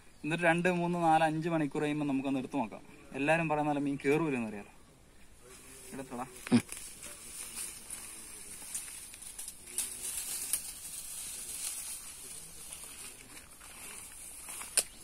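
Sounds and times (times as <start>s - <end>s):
steady high outdoor hiss: 0.0s - 15.0s
leaves and brush rustling: 4.8s - 15.0s.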